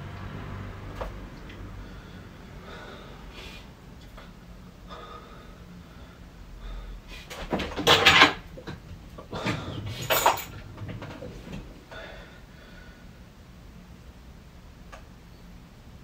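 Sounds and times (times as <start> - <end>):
objects scraping and clattering: 7.2 - 11.8.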